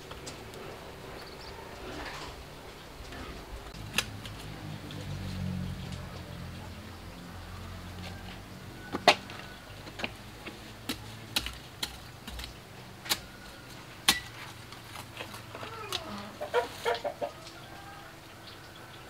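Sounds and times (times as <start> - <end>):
hen clucking: 15.5 - 18.1.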